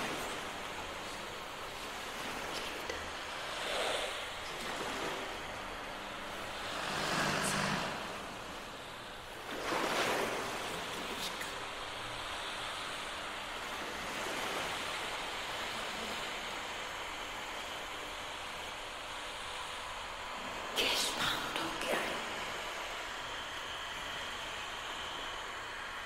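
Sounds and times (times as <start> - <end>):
orchestral rushing noise: 6.7 - 8.7.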